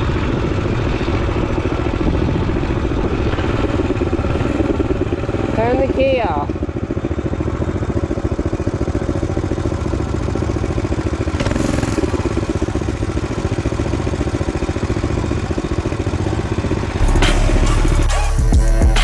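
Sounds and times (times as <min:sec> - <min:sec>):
small engine idling: 0:00.0 - 0:18.6
music: 0:17.0 - 0:19.0.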